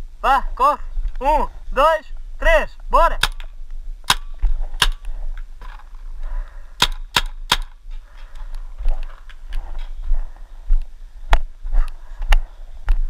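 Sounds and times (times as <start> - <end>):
paintball markers firing: 3.2 - 5.1, 6.8 - 7.8.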